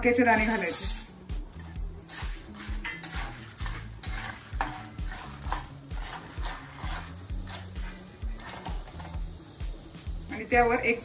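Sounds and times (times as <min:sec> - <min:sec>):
kernels scraping in metal pan: 0:00.0 - 0:09.6.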